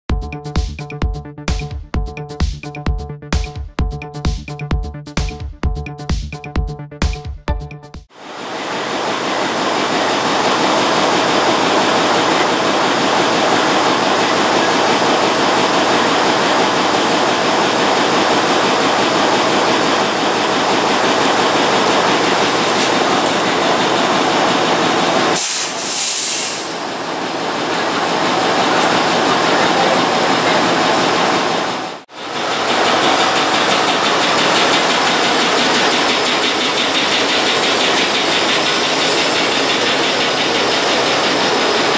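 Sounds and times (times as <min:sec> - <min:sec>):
locomotive diesel engine running: 0:07.6 - 0:41.9
short burst of high hiss: 0:25.4 - 0:26.8.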